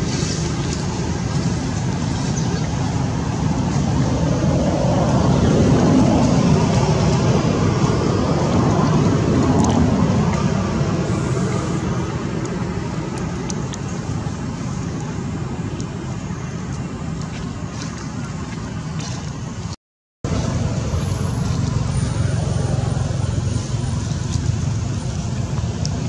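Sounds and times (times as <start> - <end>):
distant road traffic rumbling: 0.0 - 26.0.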